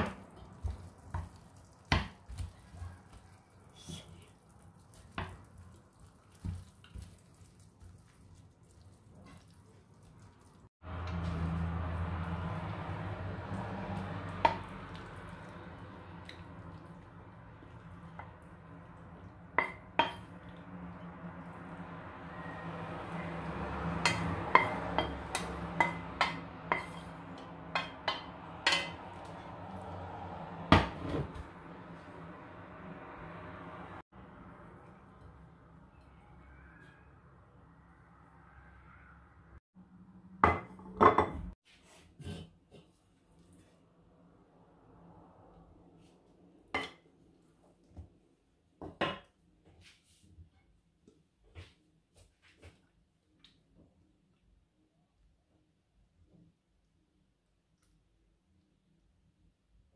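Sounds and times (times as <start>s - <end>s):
wooden spatula stirring in pan: 0.0s - 12.8s, 23.1s - 30.0s.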